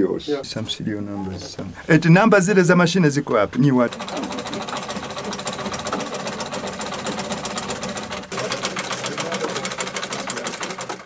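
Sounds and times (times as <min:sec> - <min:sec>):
sewing machine stitching: 0:03.3 - 0:11.0.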